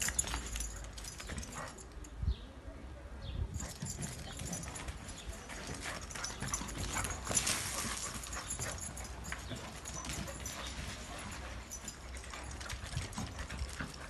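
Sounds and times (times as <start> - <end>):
dogs scuffling on dirt: 3.6 - 14.0.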